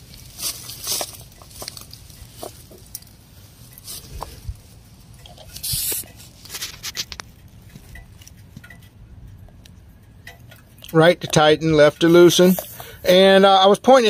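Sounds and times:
light clicks and rubbing: 0:00.0 - 0:13.0
air hissing from tire valve: 0:05.5 - 0:06.2.

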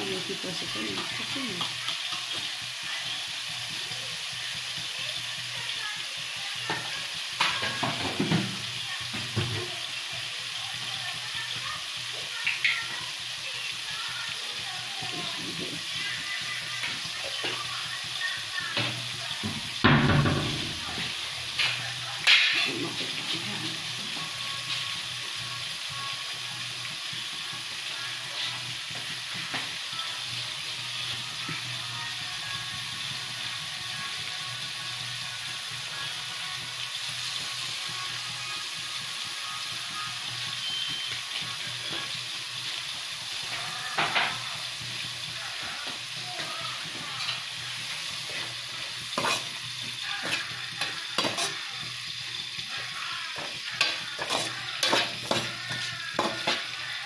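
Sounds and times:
greens sizzling in a frying pan: 0:00.0 - 0:57.0
spatula scraping a pan: 0:43.3 - 0:57.0.

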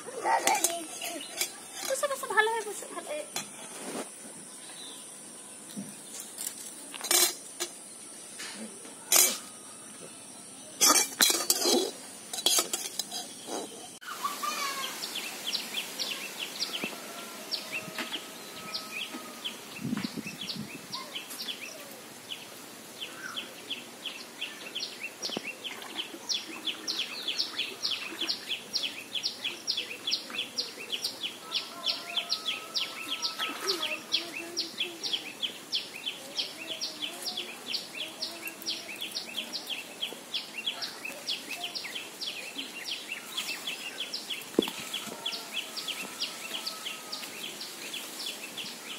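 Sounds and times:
spatula scraping in metal wok: 0:00.2 - 0:04.1, 0:07.0 - 0:07.8, 0:09.1 - 0:09.6, 0:10.8 - 0:14.0.

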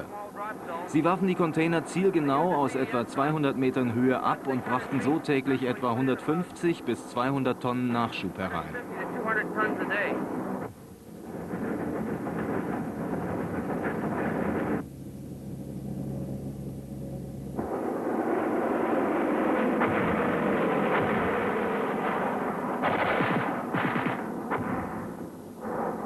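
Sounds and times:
aircraft engine drone: 0:00.0 - 0:26.0
gunfire crackle: 0:11.2 - 0:14.8, 0:17.6 - 0:26.0
heavy booms: 0:17.6 - 0:26.0.

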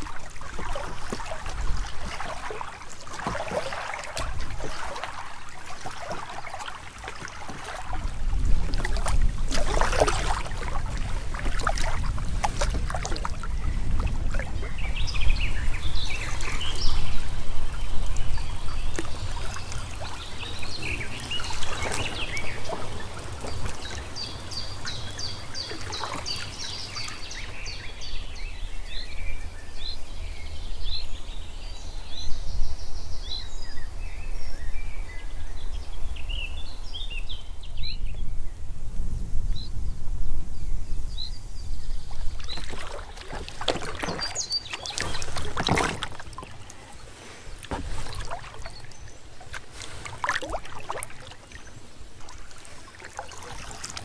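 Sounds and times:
paddle strokes splashing: 0:00.0 - 0:27.9, 0:42.0 - 0:54.0
water trickling off paddle blades: 0:00.0 - 0:28.4, 0:41.8 - 0:54.0
songbirds chirping: 0:00.0 - 0:54.0.

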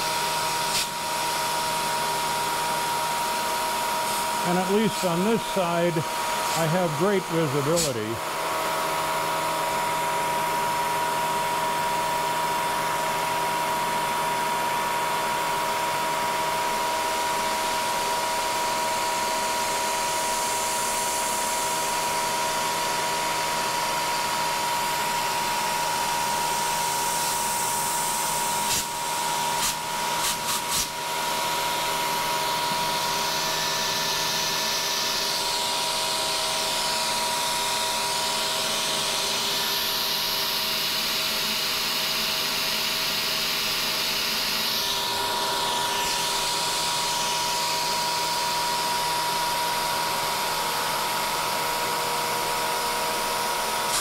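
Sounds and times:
milling machine cutting whine: 0:00.0 - 0:54.0
mist coolant spray hiss: 0:00.4 - 0:01.5, 0:03.9 - 0:08.1, 0:26.7 - 0:31.0.

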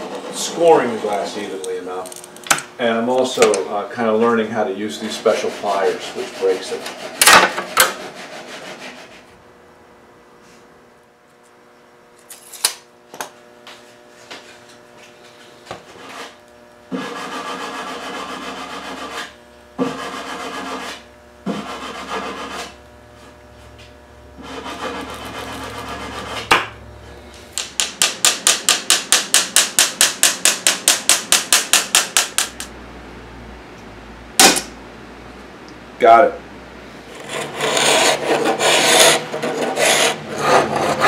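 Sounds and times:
glass cutter scoring glass: 0:37.1 - 0:41.0.

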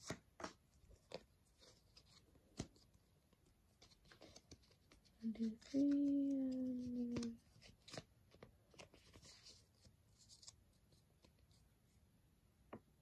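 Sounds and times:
person humming: 0:05.2 - 0:07.4.

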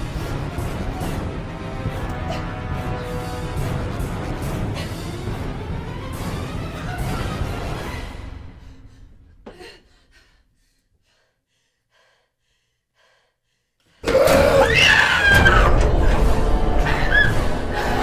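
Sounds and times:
film music: 0:00.0 - 0:09.4, 0:14.0 - 0:18.0
person screaming: 0:14.0 - 0:15.7.

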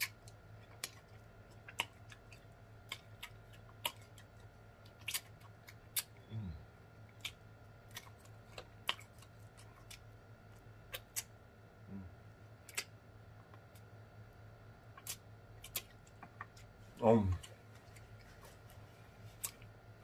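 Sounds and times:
person humming: 0:06.2 - 0:06.7, 0:11.9 - 0:12.2.

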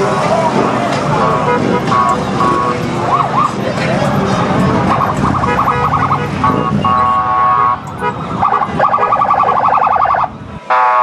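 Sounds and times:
motorcycle engines rumbling: 0:00.0 - 0:11.0
vehicle horns honking: 0:01.1 - 0:03.6, 0:04.6 - 0:10.0, 0:10.7 - 0:11.0.

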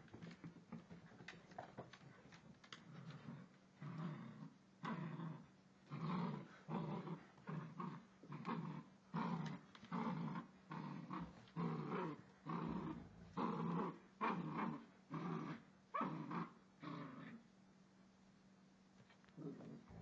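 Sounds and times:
puppy growling: 0:02.7 - 0:17.4, 0:19.4 - 0:20.0.

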